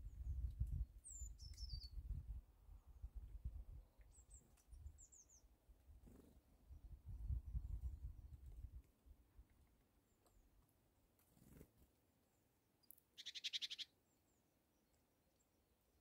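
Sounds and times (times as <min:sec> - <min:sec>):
small bird trilling: 0:13.2 - 0:13.9.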